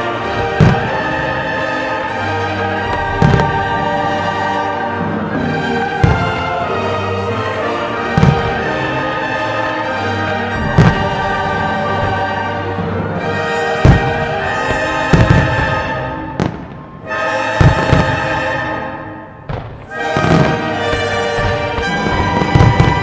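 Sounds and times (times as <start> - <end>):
orchestral music: 0.0 - 23.0
firework shells booming: 2.8 - 3.9, 5.4 - 6.6, 8.1 - 9.0, 10.4 - 12.6, 13.4 - 17.0, 17.6 - 18.6, 19.4 - 23.0.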